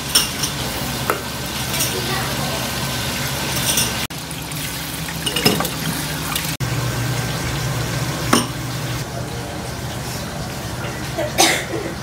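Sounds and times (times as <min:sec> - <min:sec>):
glass and crockery clinking: 0:00.0 - 0:02.1, 0:03.6 - 0:04.1, 0:05.2 - 0:05.8, 0:08.3 - 0:08.6
tap running into a sink: 0:05.2 - 0:06.4.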